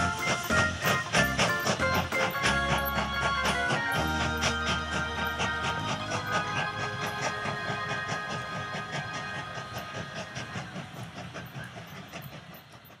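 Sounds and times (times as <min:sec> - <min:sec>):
toy train motor whir: 0:00.0 - 0:13.0
wheels clicking over rail joints: 0:00.0 - 0:13.0.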